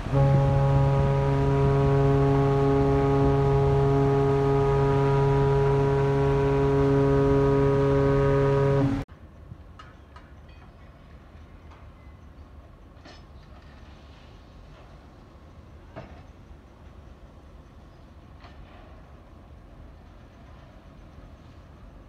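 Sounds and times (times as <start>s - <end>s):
ship's horn blast: 0.0s - 9.1s.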